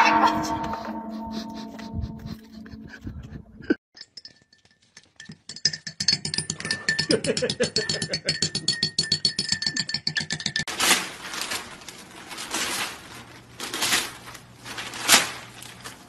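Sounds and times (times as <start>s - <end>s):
teaspoon clinking against ceramic mug: 4.0s - 10.7s.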